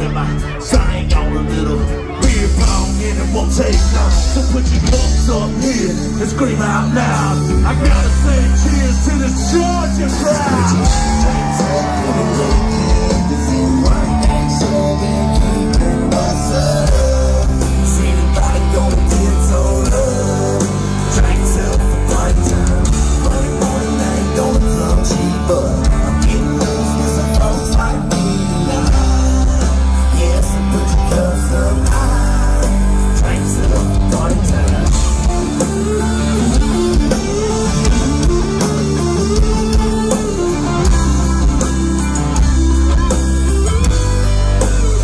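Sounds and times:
live band playing: 0.0s - 45.0s
person singing: 0.0s - 45.0s.

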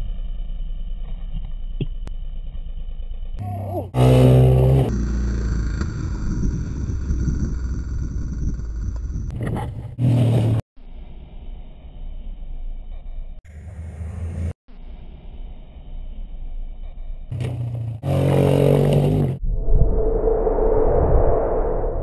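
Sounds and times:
atv engines rumbling: 3.4s - 10.6s.

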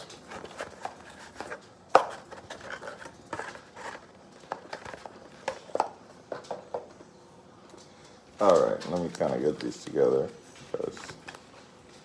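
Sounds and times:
cards tapping and clicking: 0.0s - 7.0s.

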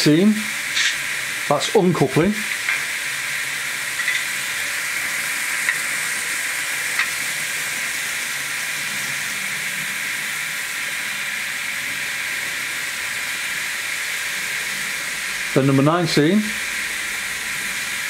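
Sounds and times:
steady hiss from small speaker: 0.0s - 18.0s.

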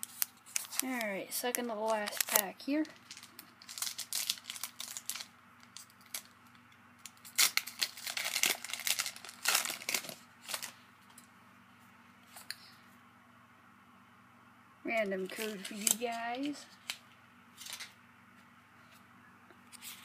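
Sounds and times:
foil wrapper tearing and crinkling: 0.0s - 10.8s, 15.4s - 17.0s, 17.6s - 17.9s.

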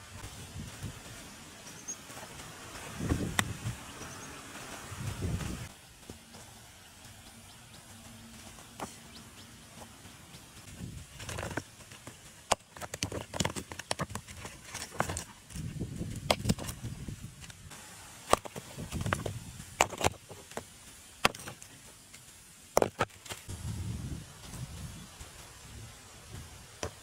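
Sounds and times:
stones scraping: 10.7s - 17.6s, 18.2s - 23.5s
stones clacking: 11.1s - 16.8s, 22.7s - 23.5s.

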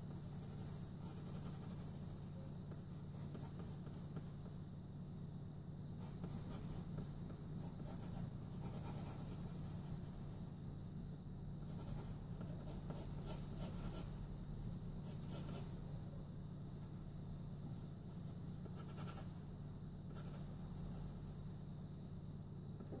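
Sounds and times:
pencil scratching on paper: 0.0s - 4.5s, 6.0s - 10.5s, 11.6s - 15.8s, 18.1s - 19.4s, 20.1s - 21.2s
steady low hum: 0.0s - 23.0s.

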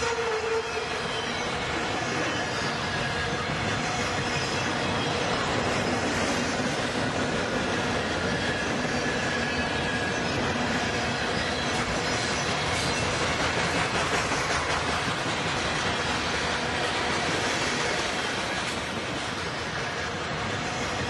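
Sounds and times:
model train wheels clattering on rails: 0.0s - 21.0s.

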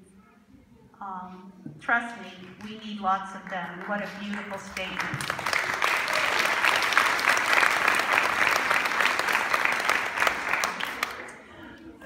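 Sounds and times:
crowd applause: 4.3s - 11.6s.

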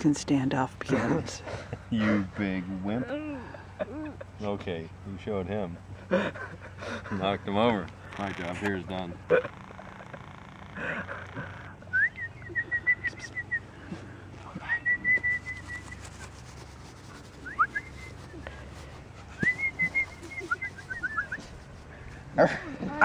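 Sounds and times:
clear whistling: 11.8s - 13.8s, 14.6s - 16.3s, 17.4s - 18.5s, 19.3s - 21.6s.

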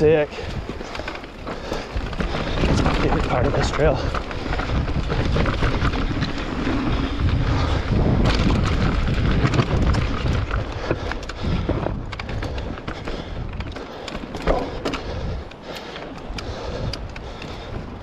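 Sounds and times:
bike rattling and knocking: 0.0s - 18.0s
tyres crunching over dirt and rock: 0.0s - 18.0s
wind rumbling on microphone: 0.0s - 18.0s.

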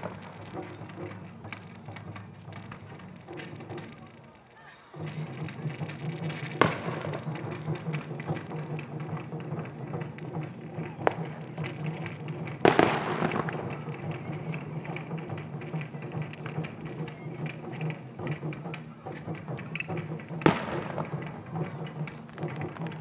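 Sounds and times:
firework shells bursting: 0.0s - 23.0s.

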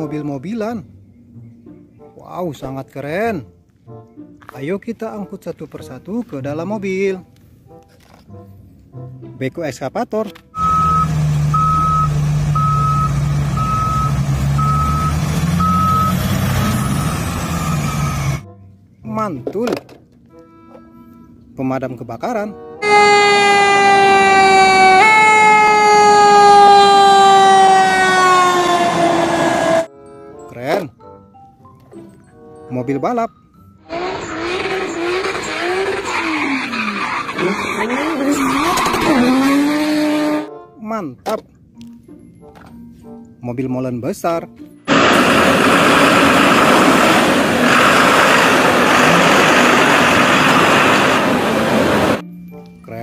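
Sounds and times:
road noise: 2.9s - 29.9s, 33.8s - 40.6s, 44.8s - 52.3s
fire engine siren: 10.6s - 18.5s, 22.8s - 29.9s, 33.8s - 36.6s, 44.9s - 52.2s.

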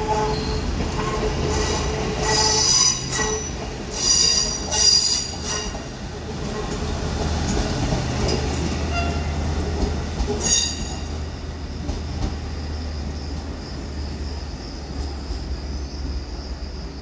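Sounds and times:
train wheels rumbling: 0.0s - 17.0s
high-pitched wheel squeal: 1.6s - 5.8s, 10.4s - 11.0s.

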